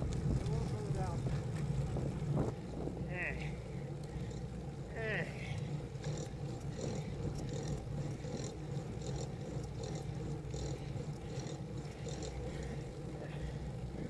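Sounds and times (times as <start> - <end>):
wind and road noise rumble: 0.0 - 14.0
light high ticks: 3.7 - 14.0.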